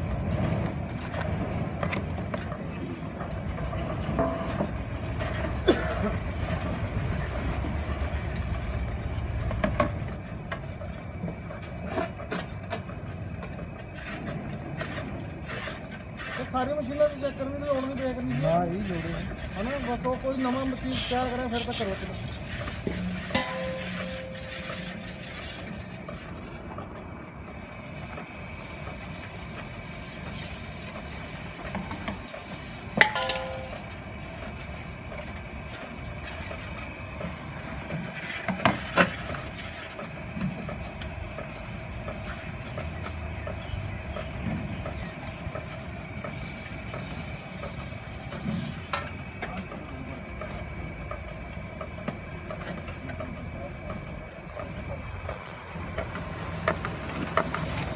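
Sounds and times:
machine humming: 0:22.2 - 0:30.1.

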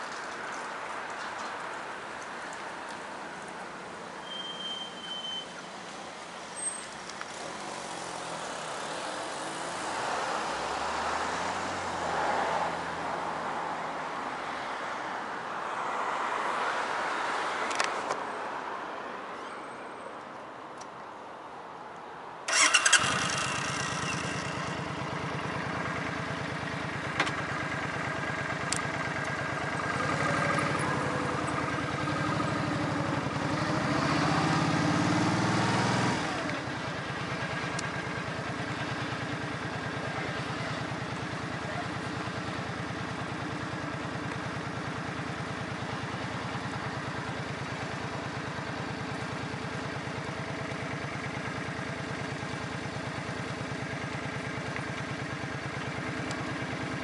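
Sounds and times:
engine starting burst: 0:22.5 - 0:24.1.

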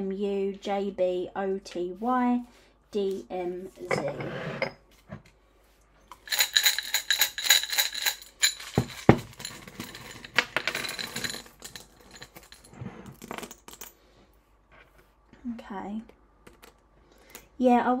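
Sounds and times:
metal charms jingling: 0:06.2 - 0:12.7.

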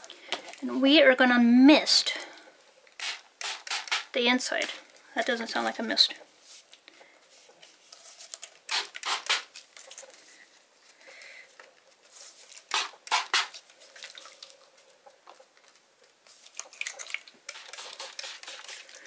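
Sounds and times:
spray bottle squirting: 0:03.0 - 0:04.1, 0:08.7 - 0:09.6, 0:12.7 - 0:13.6, 0:16.7 - 0:19.0.

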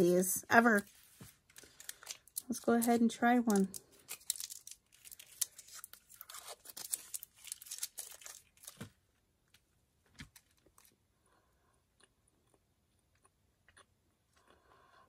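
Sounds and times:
plastic wrapper crinkling and tearing: 0:00.6 - 0:11.0.

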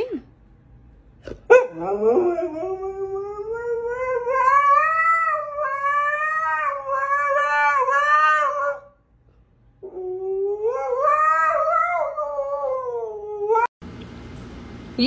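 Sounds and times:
dog howling: 0:01.5 - 0:09.0, 0:09.8 - 0:13.7.

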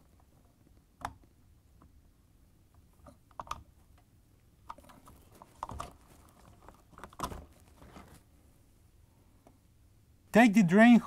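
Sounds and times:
plastic parts clicking and knocking: 0:02.7 - 0:08.1.

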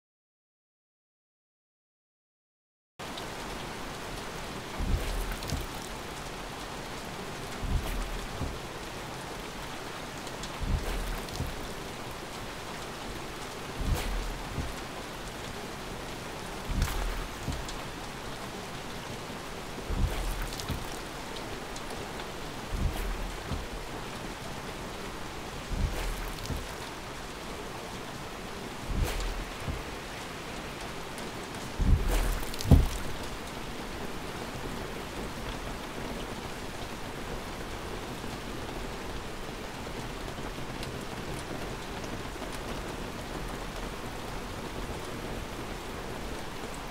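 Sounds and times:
rain pattering on car: 0:03.0 - 0:46.9
windscreen wiper thump and click: 0:04.7 - 0:05.9, 0:07.5 - 0:08.9, 0:10.2 - 0:11.9, 0:13.5 - 0:15.2, 0:16.5 - 0:18.0, 0:19.8 - 0:27.1, 0:28.7 - 0:30.3, 0:31.2 - 0:33.4.

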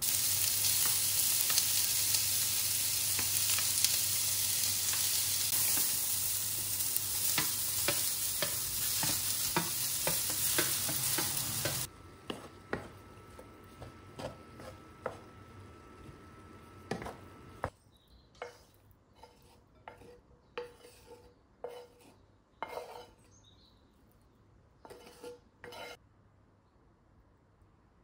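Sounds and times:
wooden spoon stirring rice in pan: 0:00.0 - 0:16.3
faint sizzle: 0:00.0 - 0:17.7
spoon scraping rice into ceramic bowl: 0:18.4 - 0:23.3.

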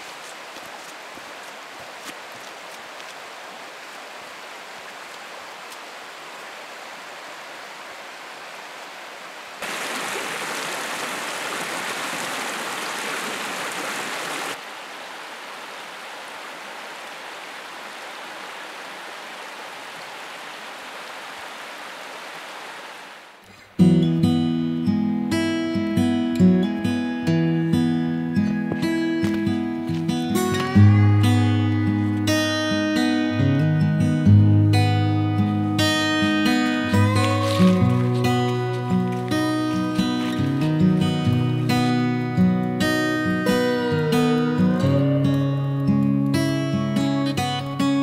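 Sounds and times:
river rushing over stones: 0:00.0 - 0:23.4, 0:35.8 - 0:40.4.

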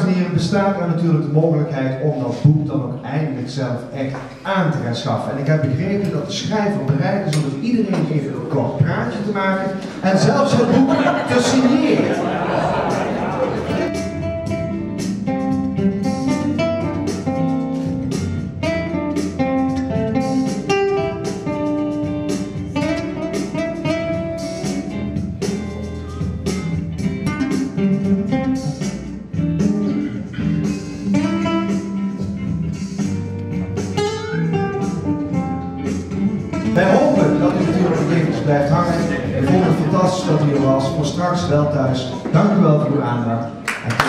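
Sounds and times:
classical guitar playing: 0:09.7 - 0:42.8.

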